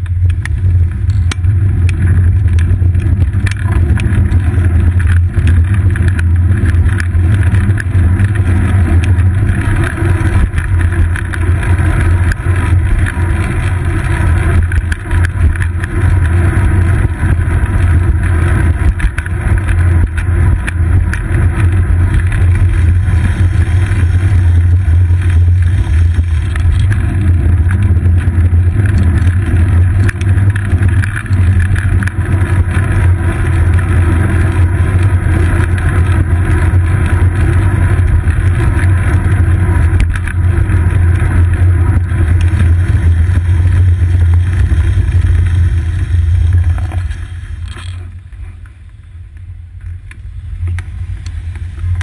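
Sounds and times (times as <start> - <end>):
road vibration rumble: 0.0 - 52.0.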